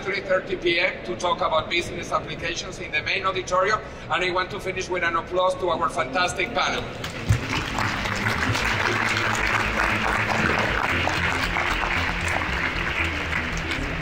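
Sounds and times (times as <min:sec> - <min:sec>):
background music: 0:06.0 - 0:14.0
audience applauding: 0:07.0 - 0:14.0.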